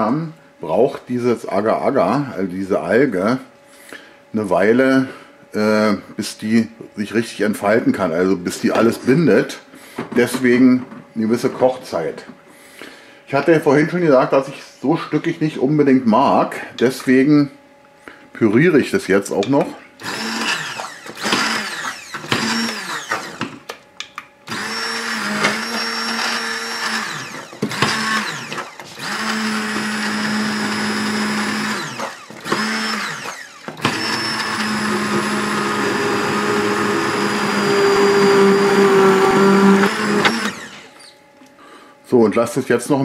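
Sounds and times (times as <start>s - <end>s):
stick blender pureeing: 19.4s - 23.7s, 24.5s - 41.1s.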